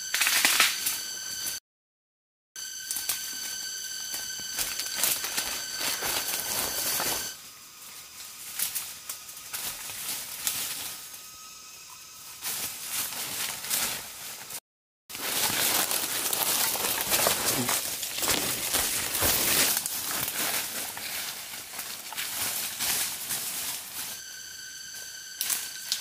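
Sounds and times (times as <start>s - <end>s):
twigs crackling: 4.1s - 11.2s, 12.4s - 24.2s
footsteps crunching through dry leaves: 4.4s - 11.2s, 12.3s - 24.2s.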